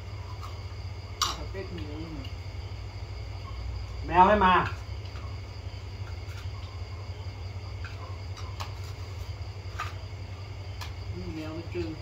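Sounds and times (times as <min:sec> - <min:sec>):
high insect chirr: 0:00.0 - 0:12.0.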